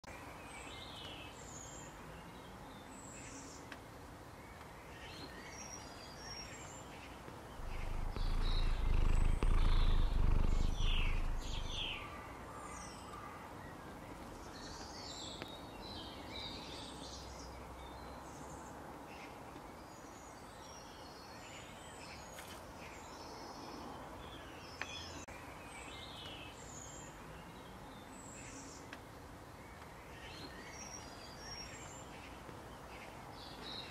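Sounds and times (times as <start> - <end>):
small birds chirping: 0.0 - 33.9
low rumble: 7.6 - 12.1.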